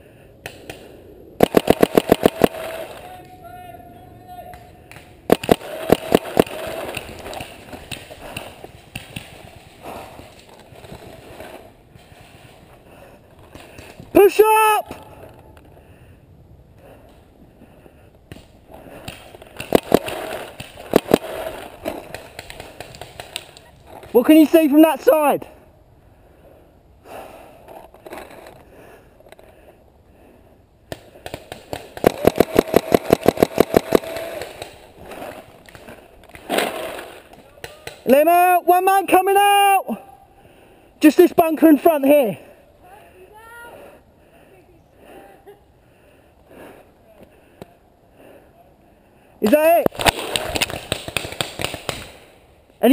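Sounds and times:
paintball markers firing: 0.4s - 3.0s, 4.5s - 11.6s, 18.3s - 24.2s, 30.9s - 38.1s, 49.4s - 52.4s.

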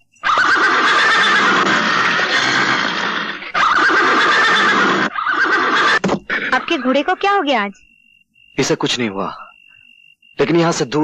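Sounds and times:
horse neighing loudly: 0.2s - 6.6s.

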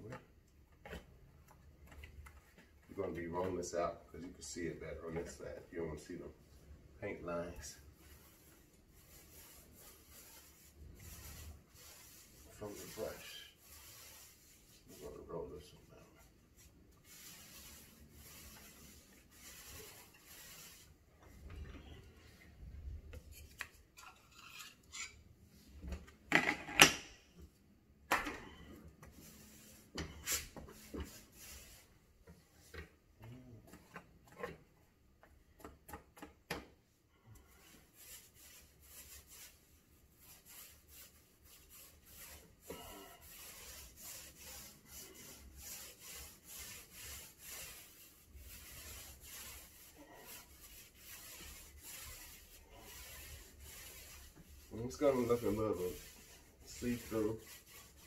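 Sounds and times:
paint roller rubbing: 7.0s - 22.6s, 28.6s - 34.6s, 37.4s - 58.0s.

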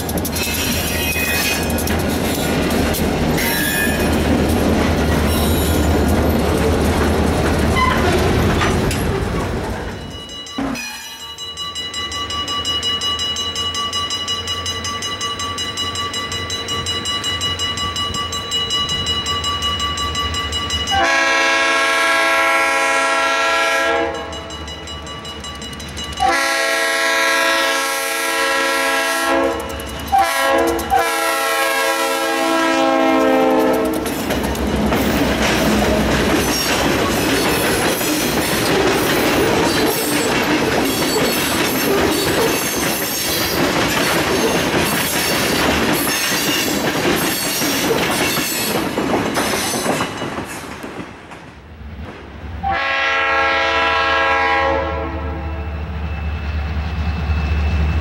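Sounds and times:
wheels clacking over rail joints: 0.0s - 11.2s, 29.3s - 31.4s, 33.1s - 52.2s
train cars rolling by: 0.0s - 58.0s
locomotive air horn chords: 20.9s - 24.3s, 26.2s - 34.0s, 52.6s - 55.6s.

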